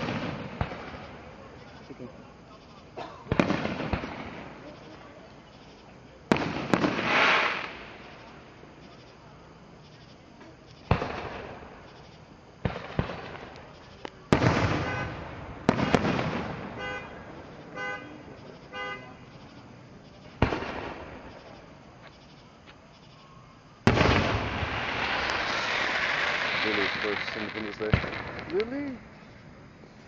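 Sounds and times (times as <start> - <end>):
fireworks bangs: 0.0 - 1.8, 3.2 - 5.0, 6.2 - 8.7, 10.8 - 19.1, 20.1 - 21.8, 23.8 - 29.1.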